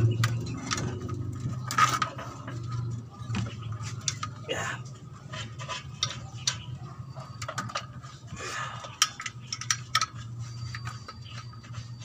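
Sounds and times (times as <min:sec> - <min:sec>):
metal tools clinking on bolts: 0:00.0 - 0:03.0, 0:03.6 - 0:12.0.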